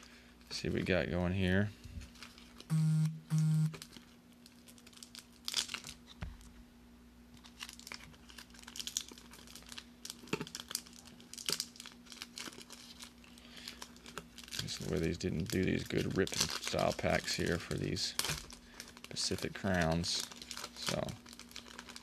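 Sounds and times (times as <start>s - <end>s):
faint steady hum: 0.0s - 22.0s
foil wrapper crinkling: 2.0s - 2.7s, 3.8s - 6.2s, 7.4s - 22.0s
low electronic tone: 2.7s - 3.8s.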